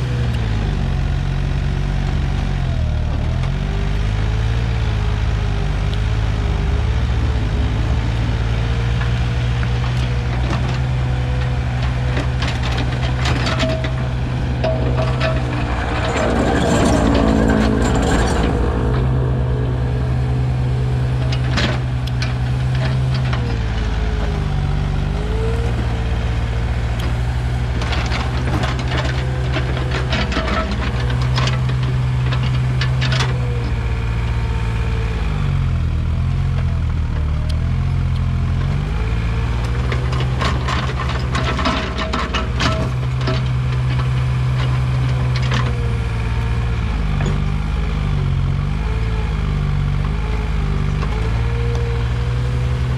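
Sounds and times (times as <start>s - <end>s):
excavator diesel engine: 0.0s - 52.9s
hydraulic whine: 6.8s - 29.0s
metal clanks and rattles: 6.8s - 33.8s, 39.7s - 47.6s.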